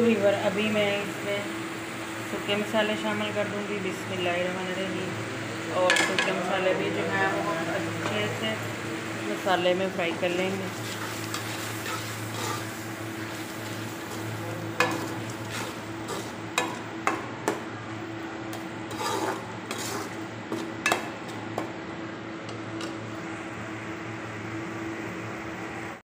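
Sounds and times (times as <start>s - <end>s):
oil sizzling in pot: 7.8s - 17.2s, 18.9s - 21.3s
metal spoon scraping pot: 10.8s - 12.7s, 18.9s - 20.2s.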